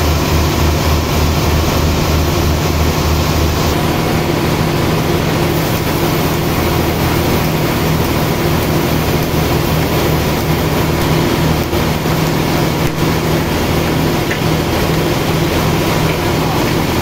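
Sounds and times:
sawmill machinery humming: 0.0 - 17.0.

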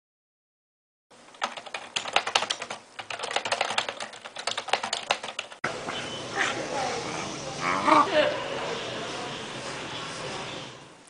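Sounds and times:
fast typing on keyboard: 1.3 - 5.6.

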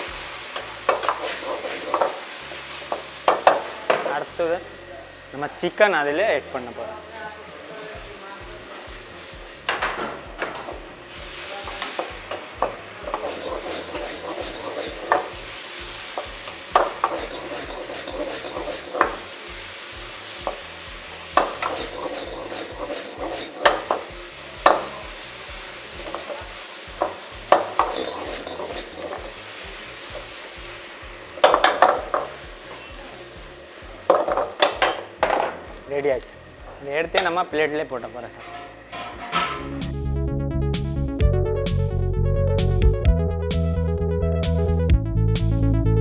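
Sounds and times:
food sizzling in a wok: 0.0 - 40.0
ladle clanking against wok: 34.0 - 35.7, 38.4 - 39.9.

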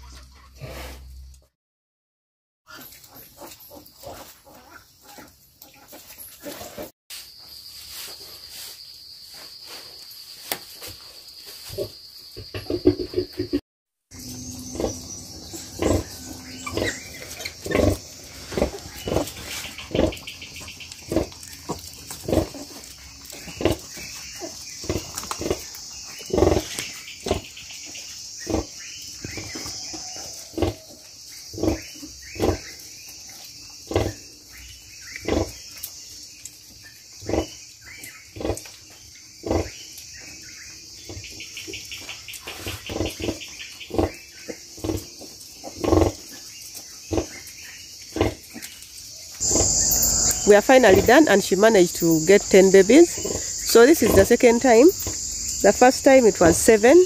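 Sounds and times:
crickets chirping: 7.1 - 57.0
sow grunting: 14.7 - 20.3, 49.4 - 55.2.

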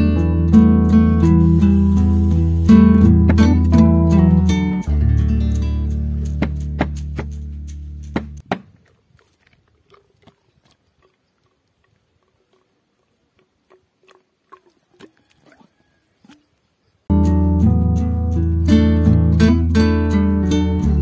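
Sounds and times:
acoustic guitar music: 0.0 - 8.4, 17.1 - 21.0.

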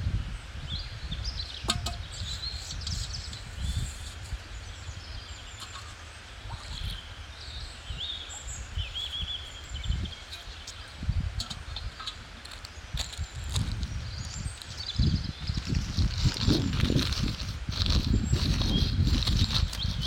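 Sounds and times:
wind rumble on microphone: 0.0 - 20.0
small birds chirping: 0.7 - 20.0.

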